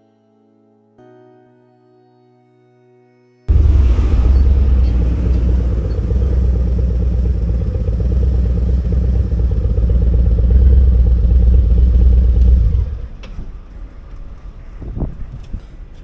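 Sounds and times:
motorcycle idling: 3.5s - 13.6s.

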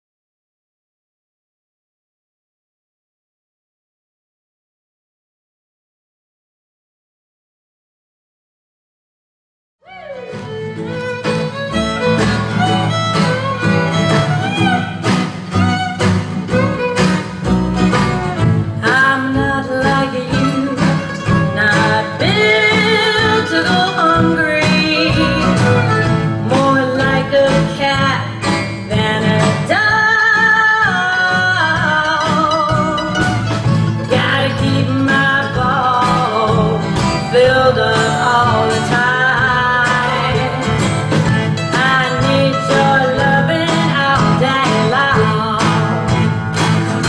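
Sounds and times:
bluegrass string band playing: 9.9s - 47.0s.

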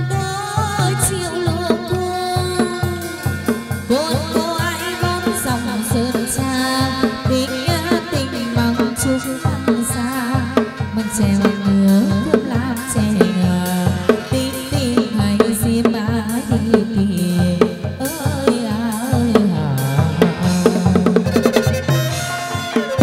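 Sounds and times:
drum and percussion beat: 0.0s - 23.0s
wavering melody: 20.1s - 23.0s.

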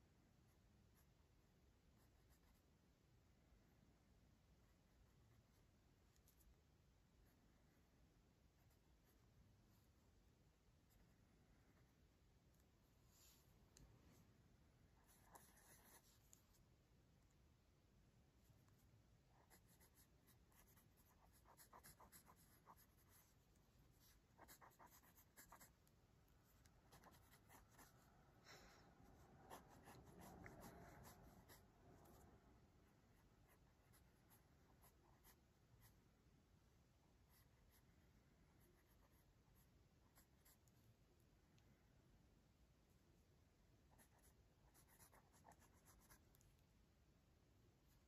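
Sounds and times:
pencil scratching on paper: 2.0s - 2.6s, 15.0s - 16.5s, 19.4s - 25.9s, 26.5s - 28.1s, 29.1s - 32.2s, 33.1s - 36.0s, 38.6s - 40.8s, 43.9s - 46.4s.

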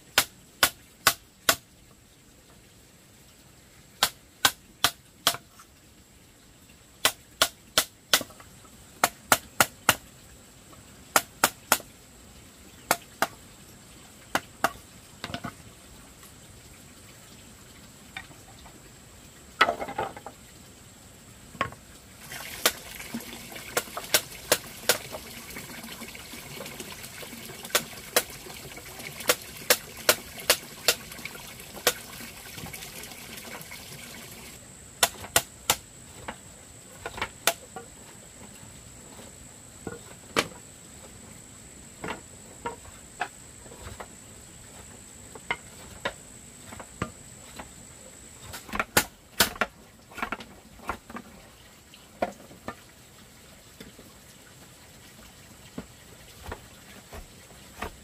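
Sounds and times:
steady hiss: 0.0s - 58.0s.

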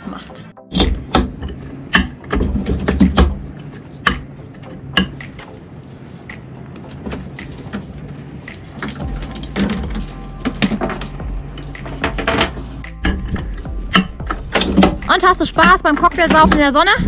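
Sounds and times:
low rumble: 8.1s - 17.0s.

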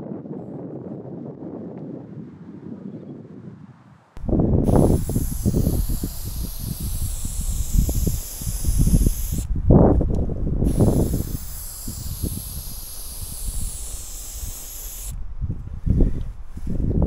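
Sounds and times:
spray paint can hissing: 4.6s - 9.5s, 10.6s - 15.2s.

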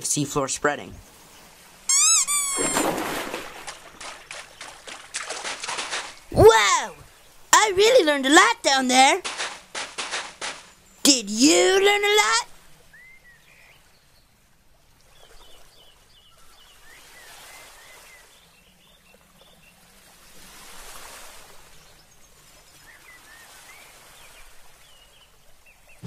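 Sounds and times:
small birds chirping: 0.1s - 2.9s, 3.6s - 14.4s
surf washing in and out: 16.7s - 18.4s, 19.8s - 25.9s.

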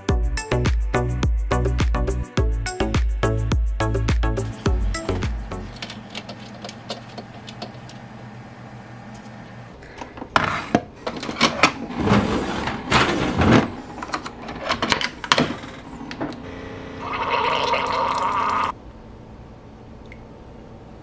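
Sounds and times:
coffee brewer gurgling hiss: 16.9s - 18.7s.

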